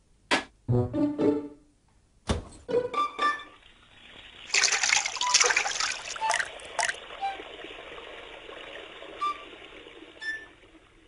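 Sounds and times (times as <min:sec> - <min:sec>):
water trickling: 0:03.6 - 0:11.0
water rushing and splashing: 0:03.8 - 0:10.8.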